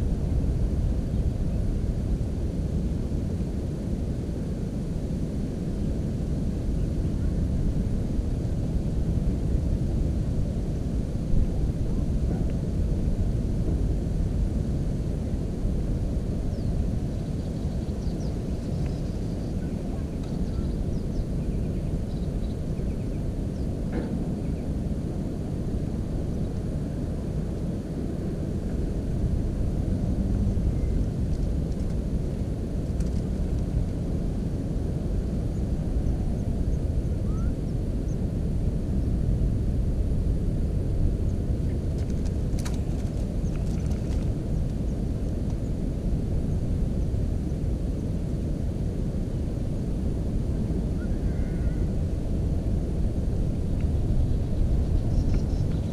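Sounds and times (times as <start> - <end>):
wind buffeting microphone: 0.0 - 55.9
faint clicks: 32.9 - 33.7.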